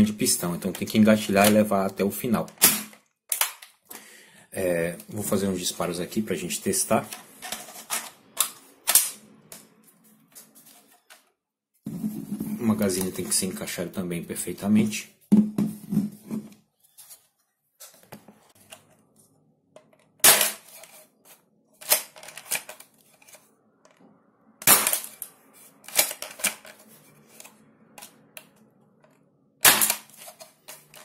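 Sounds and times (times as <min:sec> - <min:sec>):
airsoft rifle shots: 0:29.6 - 0:30.1.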